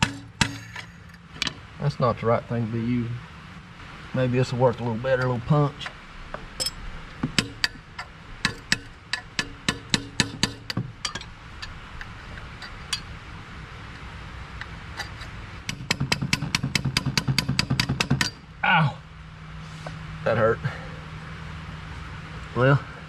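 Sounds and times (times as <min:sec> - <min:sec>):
hammer striking steel punch: 0:00.0 - 0:01.6, 0:06.6 - 0:07.8, 0:08.4 - 0:11.3, 0:15.7 - 0:18.4.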